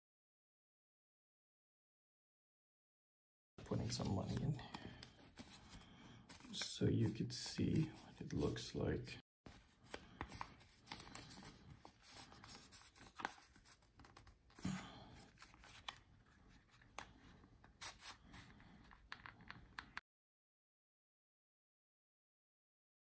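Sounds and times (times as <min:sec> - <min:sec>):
paper banknotes rustling: 0:03.7 - 0:08.8, 0:09.5 - 0:19.3.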